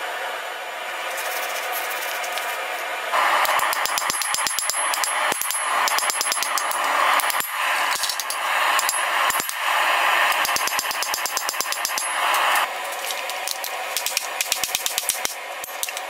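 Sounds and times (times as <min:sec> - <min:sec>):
steady rushing noise: 0:01.1 - 0:16.0
hammer striking metal on anvil: 0:03.4 - 0:09.7, 0:10.3 - 0:12.6, 0:13.5 - 0:16.0.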